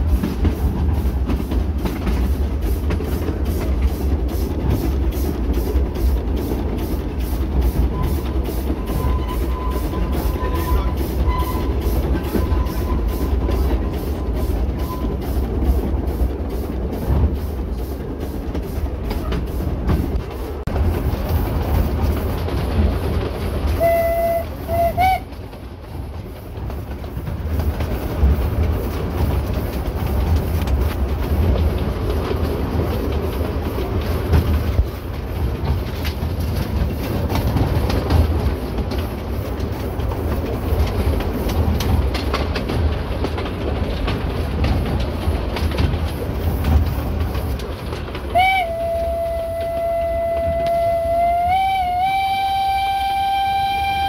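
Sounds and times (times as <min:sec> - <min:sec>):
steam locomotive rumbling: 0:00.0 - 0:54.0
wheels clattering on rails: 0:00.0 - 0:54.0
steam whistle toots: 0:07.9 - 0:13.4, 0:23.8 - 0:25.3, 0:48.3 - 0:54.0.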